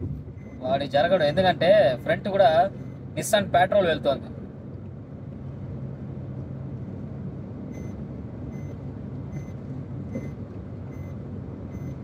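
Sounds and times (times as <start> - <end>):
road and engine rumble in car: 0.0 - 12.0
car warning chime beeping: 7.7 - 12.0.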